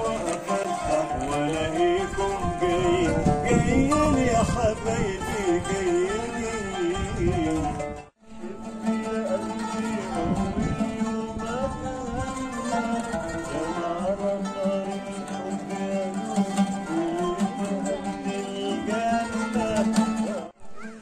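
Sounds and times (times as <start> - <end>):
plucked string melody: 0.0 - 21.0.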